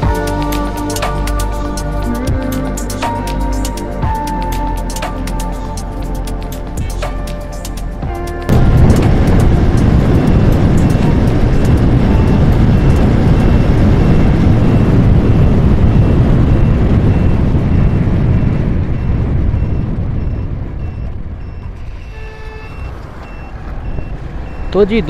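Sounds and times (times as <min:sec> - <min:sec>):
wind rush: 0:02.1 - 0:22.2
motorcycle engine at speed: 0:08.1 - 0:25.0.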